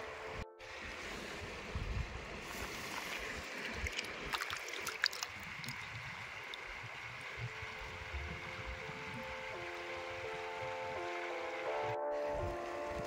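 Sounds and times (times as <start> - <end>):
wind rumble on microphone: 0.0 - 4.3, 5.2 - 11.0
stream water running: 0.0 - 13.0.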